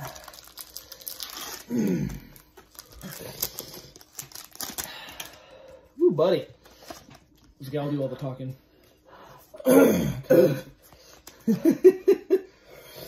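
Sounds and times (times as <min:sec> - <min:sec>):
card wrappers crinkling: 0:00.0 - 0:05.5.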